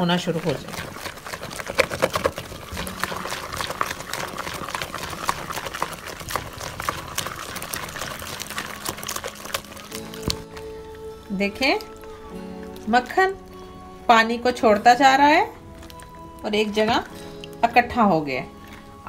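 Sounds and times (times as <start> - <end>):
whisk beating cream in a bowl: 0.0 - 10.6.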